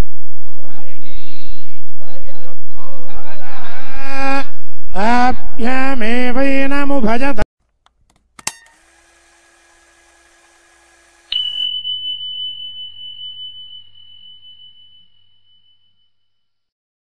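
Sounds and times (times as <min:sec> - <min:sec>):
sharp click: 0:07.8 - 0:08.8
high bell ding: 0:11.3 - 0:16.2.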